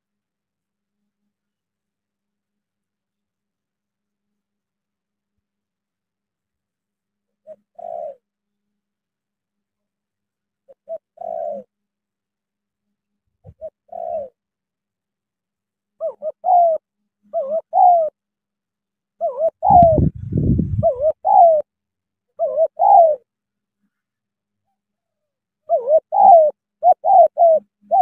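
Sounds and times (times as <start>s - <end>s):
dove cooing: 7.4s - 8.3s, 10.7s - 11.7s, 13.4s - 14.4s, 16.0s - 18.2s, 19.2s - 21.7s, 22.4s - 23.3s, 25.7s - 28.0s.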